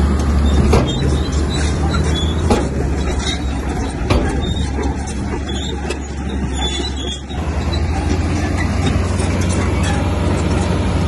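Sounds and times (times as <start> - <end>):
heavy diesel engine running: 0.0 - 11.0
sharp knocks: 0.5 - 6.0.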